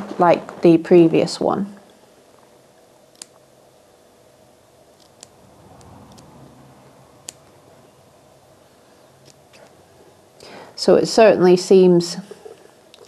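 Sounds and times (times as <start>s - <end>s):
scissors snipping clicks: 3.1s - 3.4s.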